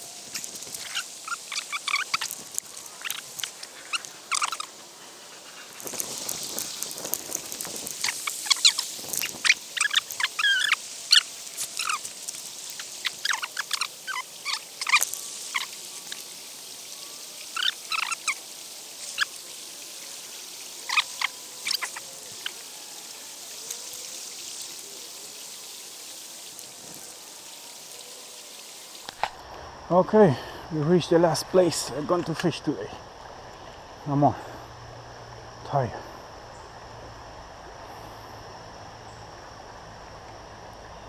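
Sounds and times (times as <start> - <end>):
river water flowing: 0.0 - 29.8
sharp clicks and squeaks: 0.3 - 4.7.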